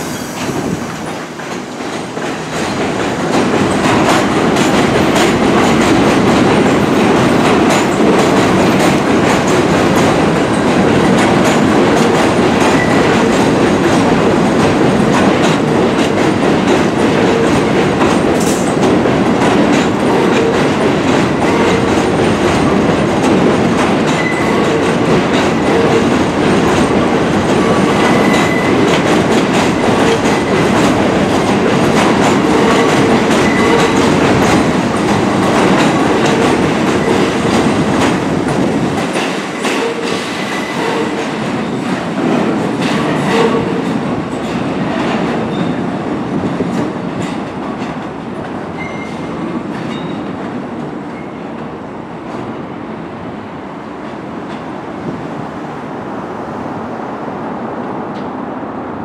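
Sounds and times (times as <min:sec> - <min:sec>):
subway train passing on elevated track: 0:00.0 - 0:59.0.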